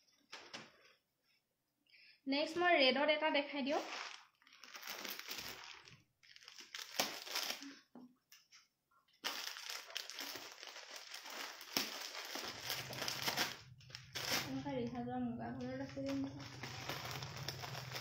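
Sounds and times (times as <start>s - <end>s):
plastic wrapper crinkling: 3.6s - 7.9s, 9.1s - 18.0s.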